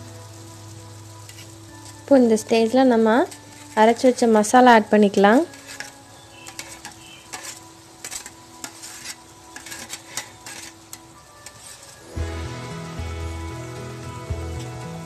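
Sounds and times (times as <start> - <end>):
background music: 0.0 - 15.0
spoon scraping steel bowl: 1.3 - 2.0, 3.3 - 4.0, 5.3 - 12.1.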